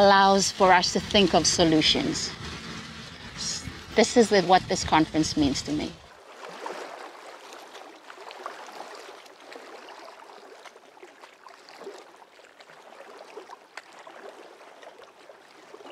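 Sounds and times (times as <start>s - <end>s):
water rushing softly: 0.0s - 15.9s.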